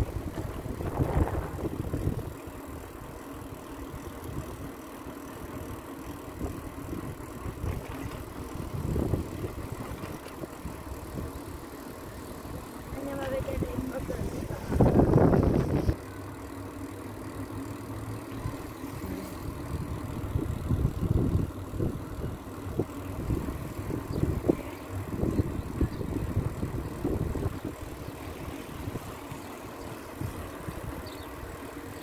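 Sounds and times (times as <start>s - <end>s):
wind buffeting microphone: 0.0s - 2.4s, 6.3s - 11.7s, 12.5s - 16.0s, 19.4s - 31.7s
bicycle tyres rumbling on asphalt: 0.0s - 32.0s.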